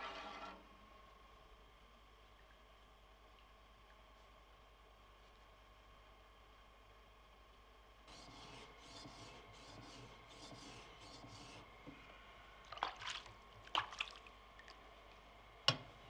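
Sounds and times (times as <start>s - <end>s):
blade scraping on whetstone: 0.0s - 0.6s.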